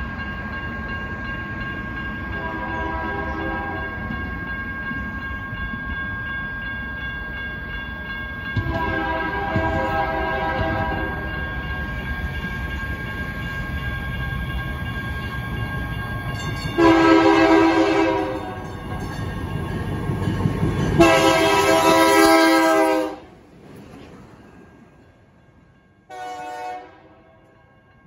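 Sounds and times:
train horn blasts: 0:02.4 - 0:03.9, 0:08.6 - 0:11.3, 0:16.8 - 0:18.6, 0:21.0 - 0:23.3, 0:26.1 - 0:27.6
diesel locomotive rumble: 0:08.6 - 0:25.3.

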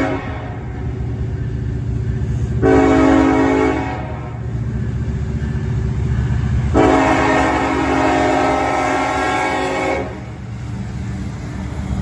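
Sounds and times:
locomotive air horn: 0:00.0 - 0:00.8, 0:02.6 - 0:04.4, 0:06.7 - 0:10.3
low locomotive rumble: 0:00.0 - 0:12.0.

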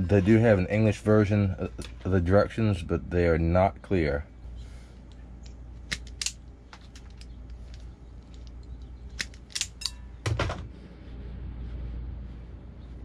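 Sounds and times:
steady low hum: 0:00.0 - 0:13.0
wire stripper snipping: 0:05.9 - 0:07.2.

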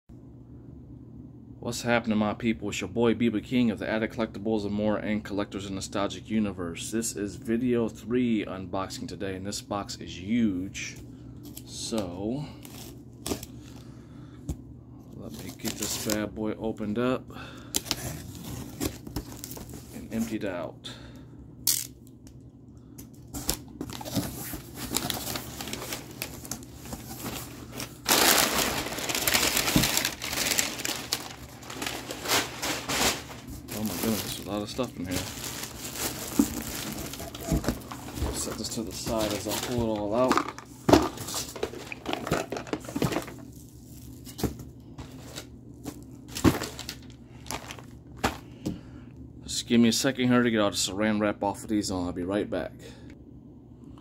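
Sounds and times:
paper and plastic crinkling: 0:15.2 - 0:16.3, 0:17.8 - 0:20.4, 0:23.3 - 0:48.5.

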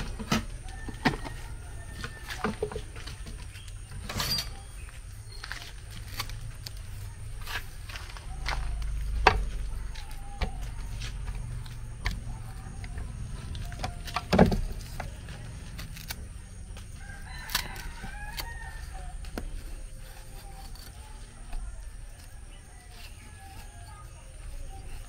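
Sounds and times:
rooster crowing: 0:00.4 - 0:02.8, 0:16.9 - 0:19.2.

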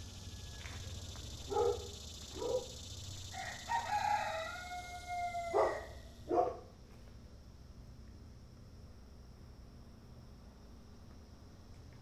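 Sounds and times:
rooster crowing: 0:00.0 - 0:01.8, 0:03.2 - 0:06.2.

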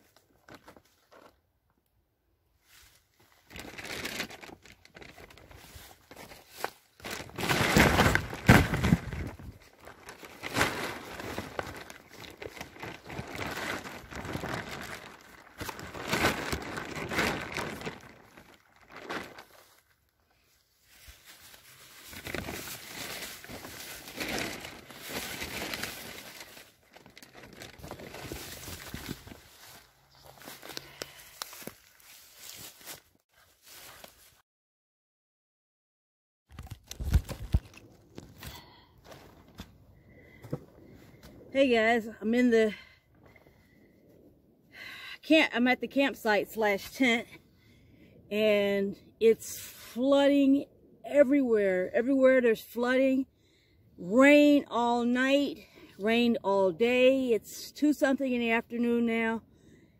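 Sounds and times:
plastic tarp crinkling: 0:03.2 - 0:20.0, 0:20.8 - 0:34.4, 0:36.5 - 0:39.6.

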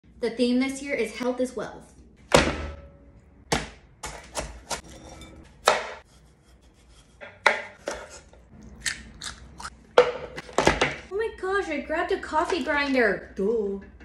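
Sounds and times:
knife chopping on wooden board: 0:05.6 - 0:06.0, 0:07.2 - 0:08.2.

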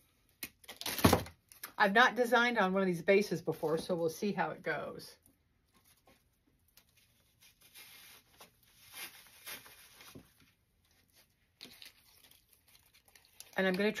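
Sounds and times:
soft crackles: 0:05.2 - 0:14.0
stems rustling and scratching in wreath: 0:06.8 - 0:10.2.

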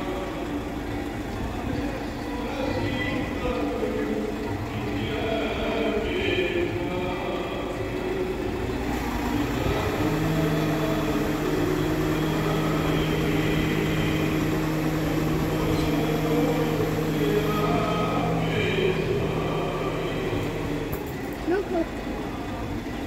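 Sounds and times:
machine mechanical hum: 0:00.0 - 0:23.0.

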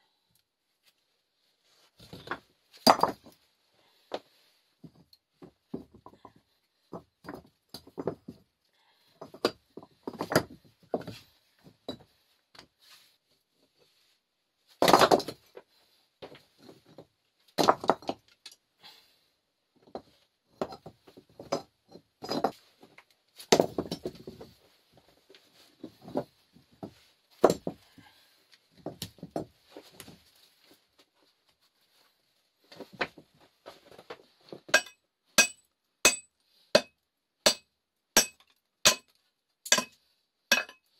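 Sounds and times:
rocks knocking on stone: 0:02.1 - 0:03.3, 0:17.6 - 0:18.2
stone-on-stone clinks: 0:34.8 - 0:36.9, 0:39.7 - 0:40.8.

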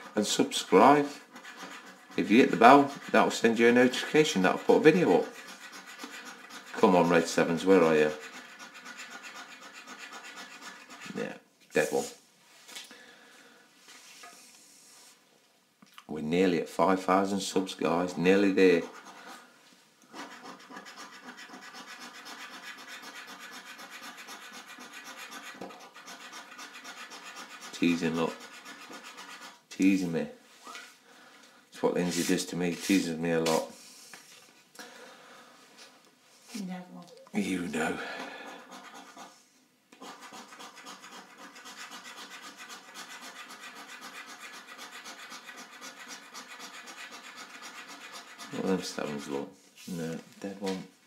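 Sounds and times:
coin scraping scratchcard: 0:01.3 - 0:03.4, 0:05.0 - 0:11.2, 0:20.2 - 0:29.6, 0:40.0 - 0:49.3.

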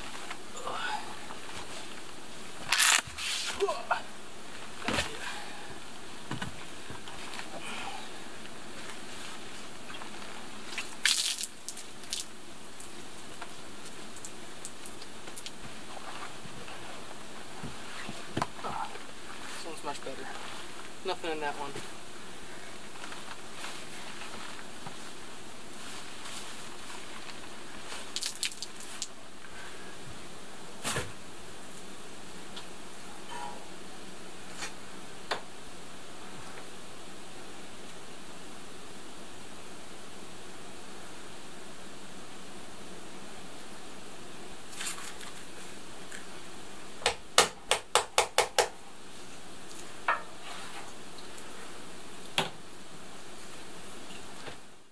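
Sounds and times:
steady background hiss: 0:00.0 - 0:54.9
cloth rustling: 0:02.7 - 0:03.7.

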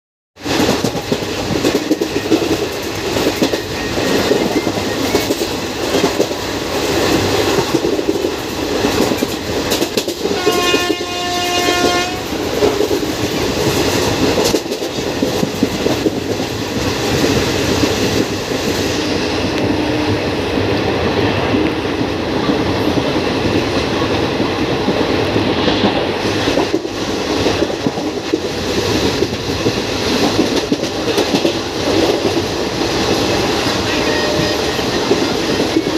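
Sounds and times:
train rumbling on rails: 0:00.4 - 0:35.9
train horn: 0:10.2 - 0:12.4, 0:18.9 - 0:20.4, 0:33.6 - 0:35.2.

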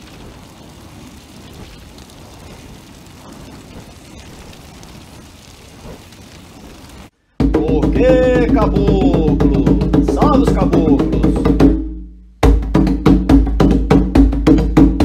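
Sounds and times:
low rumble of flames: 0:00.0 - 0:11.6
fire crackles: 0:00.0 - 0:13.6.

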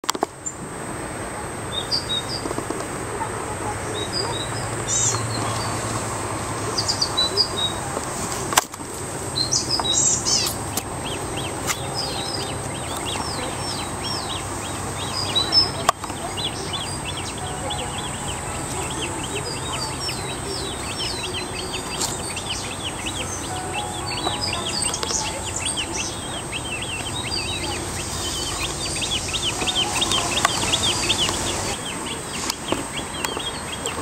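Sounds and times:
small birds singing: 0:01.6 - 0:34.0.

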